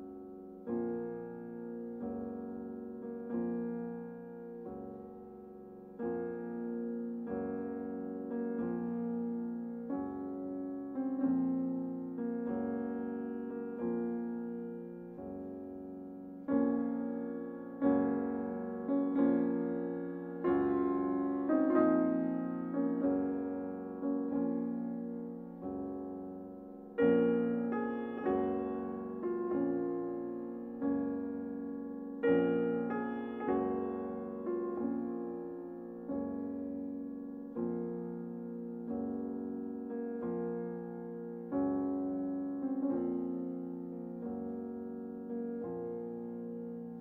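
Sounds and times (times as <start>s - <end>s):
slow piano chords: 0.0s - 47.0s.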